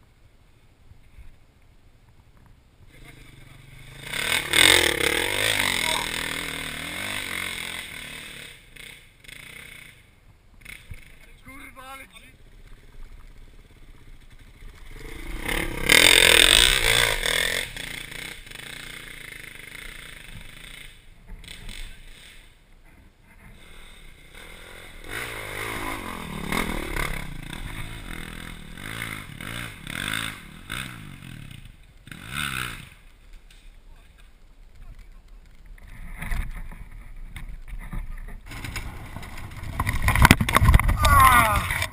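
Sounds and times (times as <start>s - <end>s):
motorcycle engine revving: 2.9s - 11.5s, 12.2s - 22.6s, 23.3s - 33.2s.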